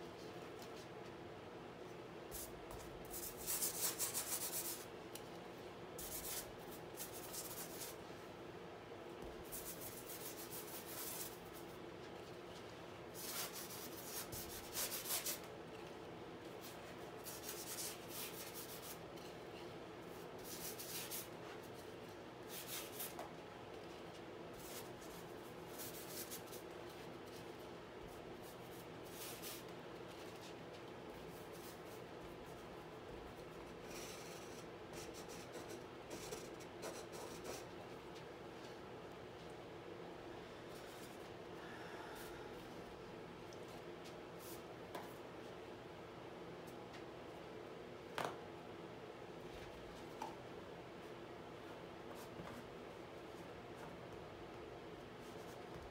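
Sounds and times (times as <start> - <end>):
brush rubbing on canvas: 3.1 - 4.8, 13.2 - 15.4, 16.6 - 19.0, 20.1 - 21.8.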